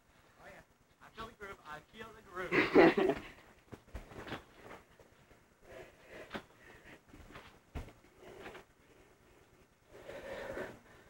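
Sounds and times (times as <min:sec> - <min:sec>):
quiet rustling: 0:02.9 - 0:09.9.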